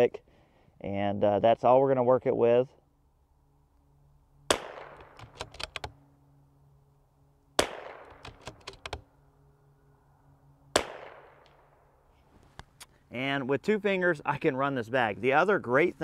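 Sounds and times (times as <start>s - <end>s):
rifle shots: 4.5s - 5.4s, 7.6s - 8.4s, 10.7s - 11.5s.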